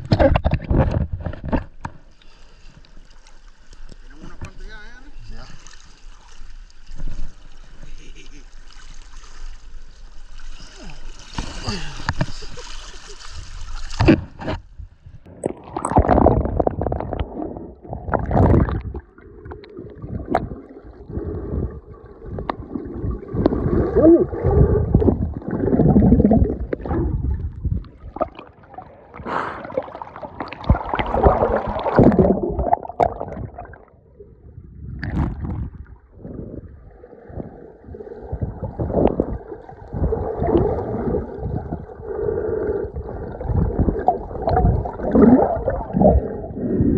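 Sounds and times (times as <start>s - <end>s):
muffled underwater gurgling: 15.3s - 46.9s.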